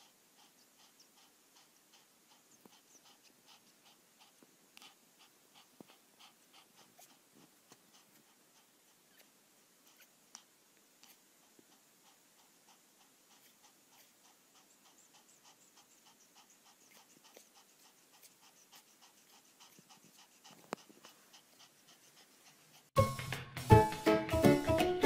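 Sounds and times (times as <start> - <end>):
puppy breathing or squeaking: 0.0 - 7.3, 7.9 - 9.3, 9.9 - 10.2, 12.1 - 22.9
music: 23.0 - 25.0.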